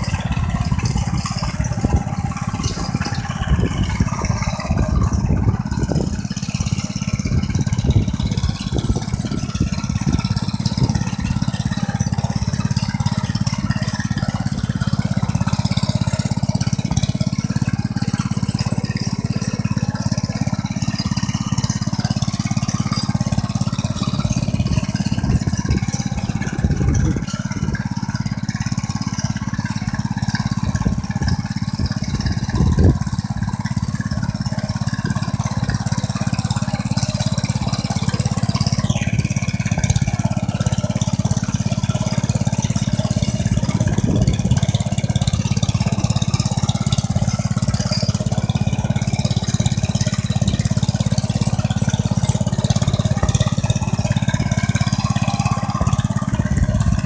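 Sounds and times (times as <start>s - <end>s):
single-cylinder engine running: 0.0s - 57.0s.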